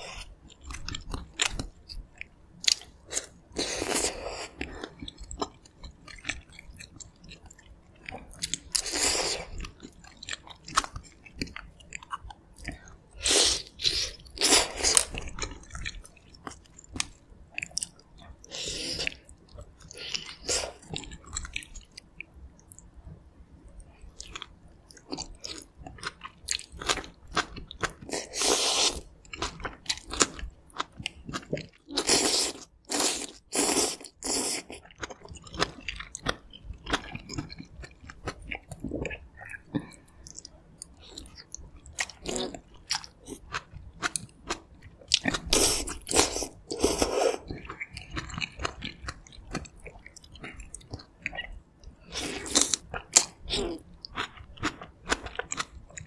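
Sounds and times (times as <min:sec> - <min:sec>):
chewing and biting food: 0:14.2 - 0:18.4, 0:24.1 - 0:56.0.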